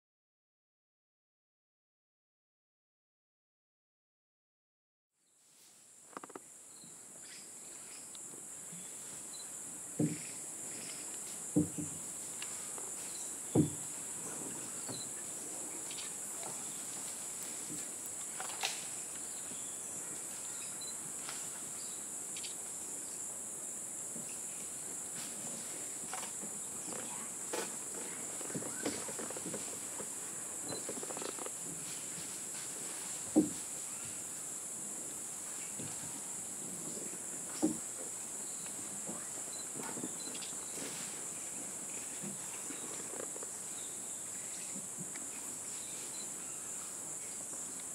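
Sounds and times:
insect chorus drone: 0:05.7 - 0:47.9
sharp knocks: 0:10.0 - 0:10.3, 0:11.5 - 0:12.0, 0:13.5 - 0:13.9.

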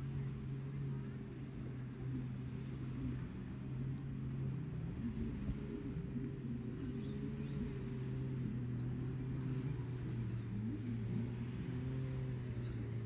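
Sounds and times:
watercraft engines droning: 0:00.0 - 0:13.0
engine revving: 0:02.4 - 0:13.0.

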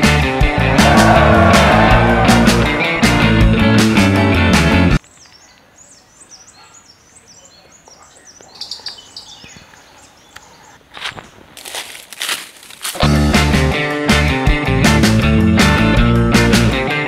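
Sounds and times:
rock music with guitar: 0:00.0 - 0:05.0, 0:13.0 - 0:17.0
birds chirping: 0:05.0 - 0:11.4.

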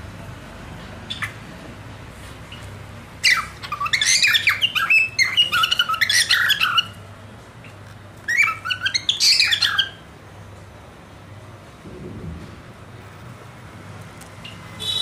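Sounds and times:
cockatiel chirping: 0:03.2 - 0:07.0, 0:08.3 - 0:10.0.

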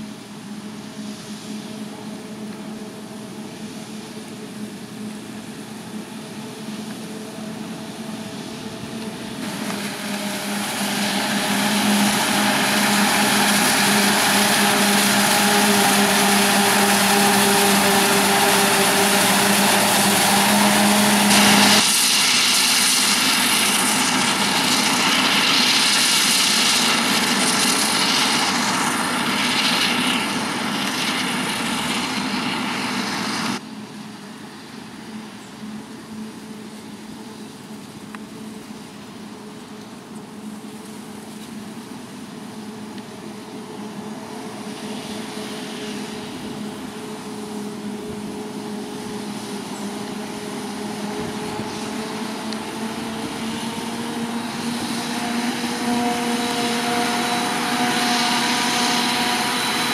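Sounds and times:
forage harvester engine drone: 0:00.0 - 0:59.9
wide hiss of chopping: 0:08.0 - 0:33.6.

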